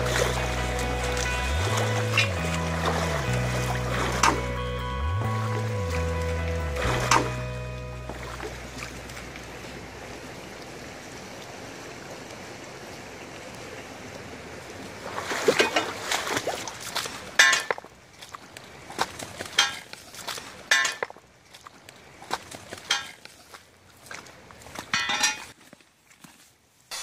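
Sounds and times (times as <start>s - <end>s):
stream flowing over rocks: 0.0s - 25.6s
footsteps crunching on river stones: 21.5s - 26.9s.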